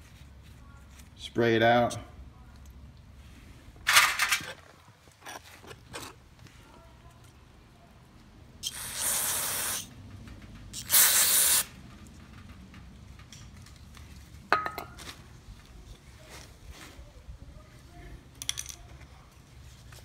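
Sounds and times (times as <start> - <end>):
aerosol spray hissing: 8.6 - 9.9, 10.8 - 11.7.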